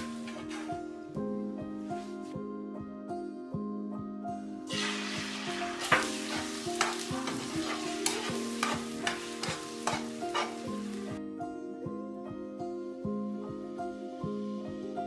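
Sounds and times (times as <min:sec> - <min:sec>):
eggs sizzling in a frying pan: 0:04.7 - 0:11.2.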